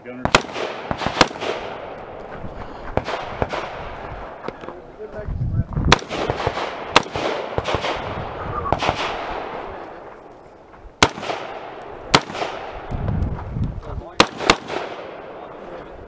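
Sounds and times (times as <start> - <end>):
rifle shots cracking: 0.2 - 2.2, 3.0 - 4.3, 5.9 - 8.2, 8.8 - 9.8, 11.0 - 13.0, 14.2 - 15.4.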